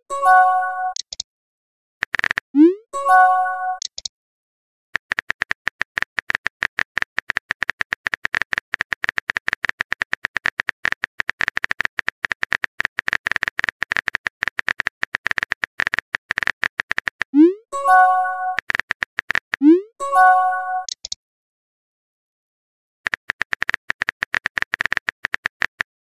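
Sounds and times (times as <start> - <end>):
keyboard key clicks: 1.0 - 1.2, 5.0 - 17.3, 20.9 - 21.2, 23.1 - 25.9.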